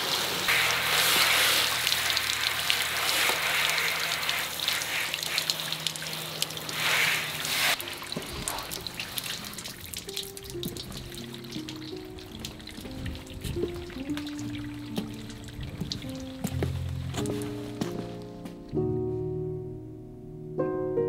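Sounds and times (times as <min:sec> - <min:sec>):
hose spray hissing on car: 0:00.0 - 0:16.8
water dripping: 0:00.0 - 0:18.5.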